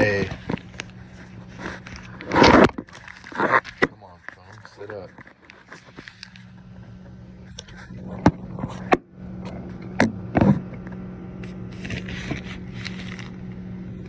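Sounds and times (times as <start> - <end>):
steady low hum: 0.0 - 14.0
plastic bag rustling: 11.7 - 13.4.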